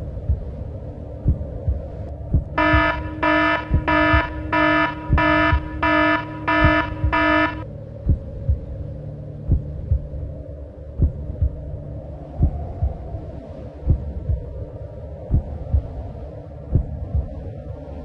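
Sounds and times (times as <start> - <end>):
dull low thumps: 0.0 - 17.7
low hum: 0.0 - 18.0
electronic alarm beeps: 2.6 - 7.6.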